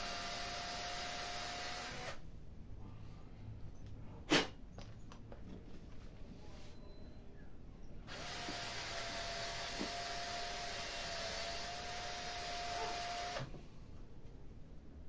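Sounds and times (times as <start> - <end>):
cordless drill whining: 0.0 - 2.2, 8.1 - 13.6.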